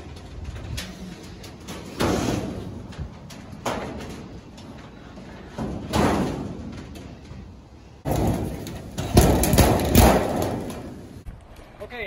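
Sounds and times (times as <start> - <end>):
metal panels clattering: 0.0 - 11.2
sheet-steel panels rattling: 0.0 - 11.2
sharp metal bangs: 8.0 - 11.2.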